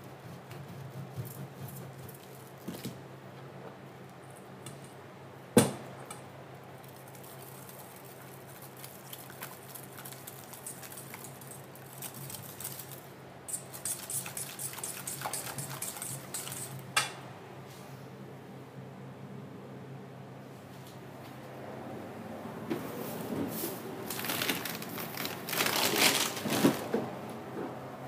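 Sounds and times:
whisk clicking against metal bowl: 0:13.5 - 0:16.7.

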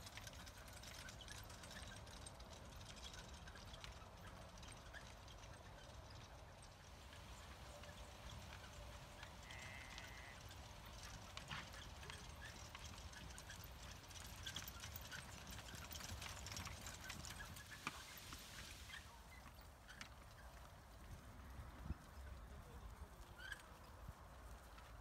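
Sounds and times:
horse hoofbeats trotting on grass: 0:00.0 - 0:25.0.

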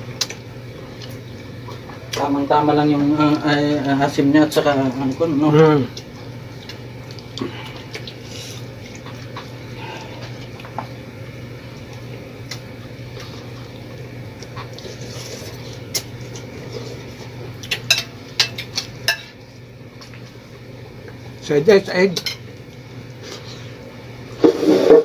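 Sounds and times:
steady low hum: 0:00.0 - 0:25.0
cutlery clinking on plates: 0:17.7 - 0:19.3.

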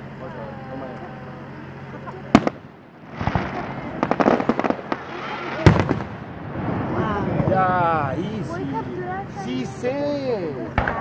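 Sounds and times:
crackling firework pops: 0:02.3 - 0:06.8, 0:10.8 - 0:11.0
firework shell bursts: 0:02.3 - 0:06.9.

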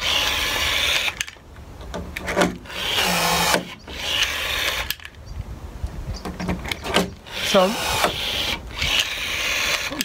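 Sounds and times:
rivet tool motor running: 0:00.0 - 0:01.3, 0:02.6 - 0:05.1, 0:07.0 - 0:10.0.

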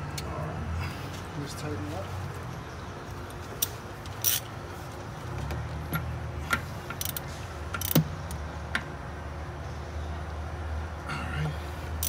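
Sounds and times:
socket wrench clicking: 0:05.9 - 0:08.8.

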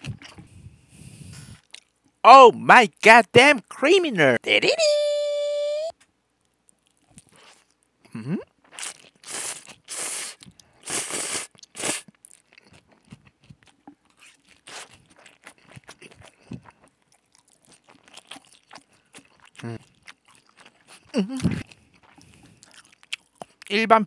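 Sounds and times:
wet chewing: 0:06.7 - 0:07.8, 0:08.6 - 0:23.7
slurping noodles: 0:08.7 - 0:12.1, 0:14.1 - 0:23.0.

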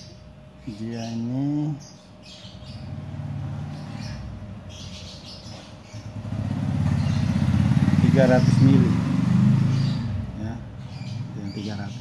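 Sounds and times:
vehicle engine running: 0:02.6 - 0:12.0.

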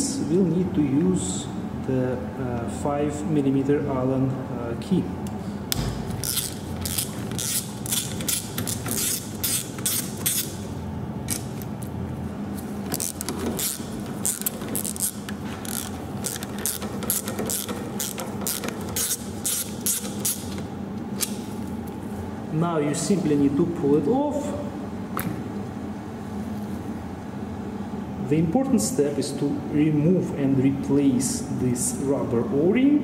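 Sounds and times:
steady low hum: 0:00.0 - 0:33.0
ratchet clicking: 0:05.7 - 0:10.6, 0:12.9 - 0:20.6.

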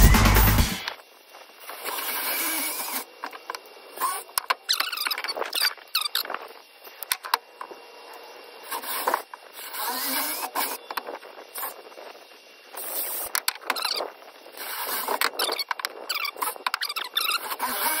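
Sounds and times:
cordless drill running: 0:01.7 - 0:04.3, 0:07.7 - 0:11.8, 0:12.7 - 0:18.0
drill bit squeaking in wood: 0:01.8 - 0:03.1, 0:03.9 - 0:07.0, 0:08.6 - 0:11.9, 0:12.8 - 0:18.0.

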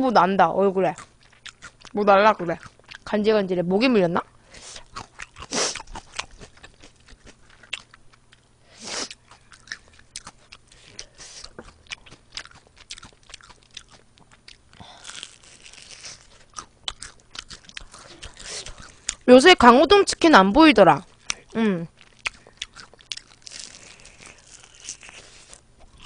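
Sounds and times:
crunching and chewing crispy food: 0:00.9 - 0:02.0, 0:04.5 - 0:19.3, 0:21.0 - 0:26.0.

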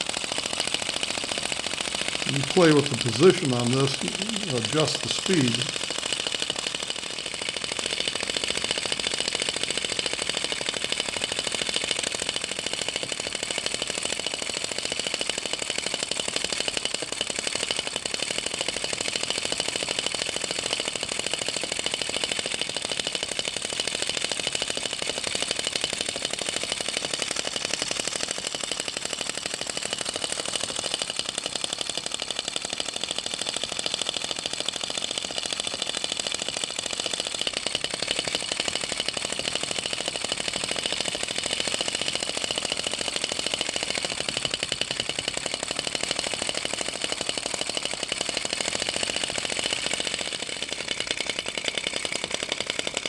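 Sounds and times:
model engine clattering: 0:00.0 - 0:53.0.

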